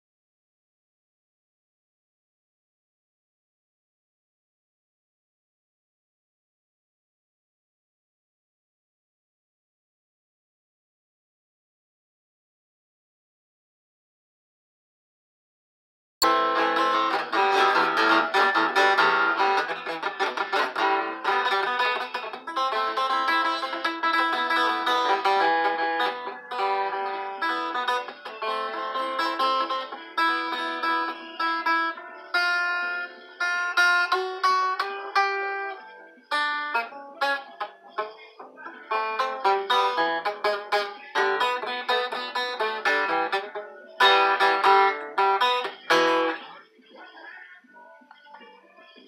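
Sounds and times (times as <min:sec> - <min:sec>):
acoustic guitar: 0:16.2 - 0:47.4.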